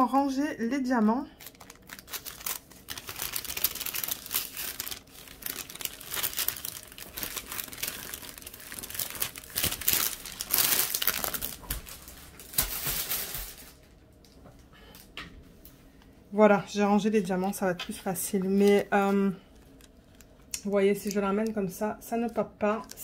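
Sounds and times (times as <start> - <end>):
plastic crinkling and rustling: 1.4 - 14.3, 17.8 - 23.0.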